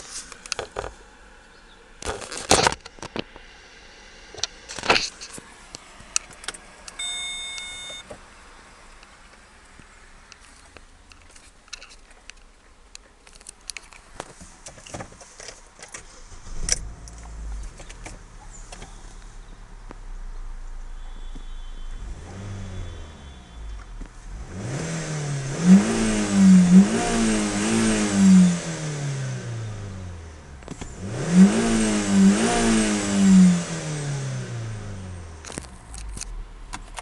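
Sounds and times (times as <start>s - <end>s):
car engine starting and idling: 0.0s - 37.0s
short electronic beep: 7.0s - 8.1s.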